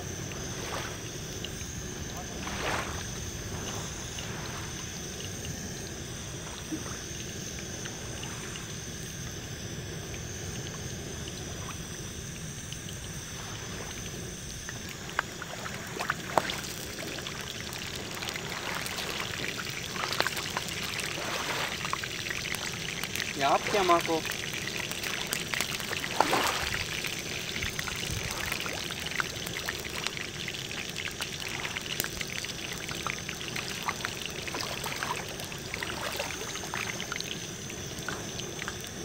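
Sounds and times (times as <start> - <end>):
sea water lapping and trickling: 0.0 - 39.0
steady hiss: 0.0 - 39.0
crackling: 13.8 - 35.8.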